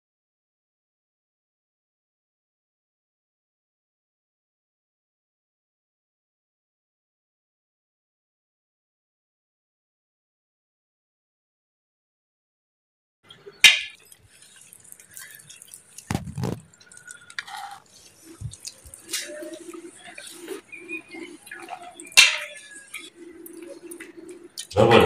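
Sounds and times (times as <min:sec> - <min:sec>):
spoons clinking on plates: 0:13.4 - 0:14.2, 0:15.0 - 0:24.8.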